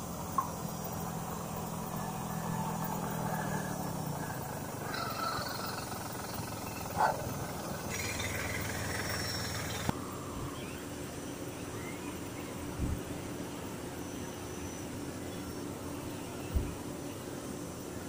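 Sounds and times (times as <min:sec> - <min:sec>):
passing cars and tyres: 0:00.0 - 0:09.9
low engine drone: 0:00.0 - 0:18.0.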